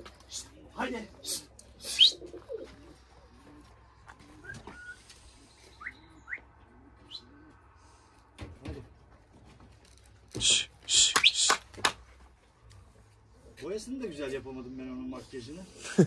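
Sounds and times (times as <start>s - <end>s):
pigeons cooing: 0.0s - 8.9s.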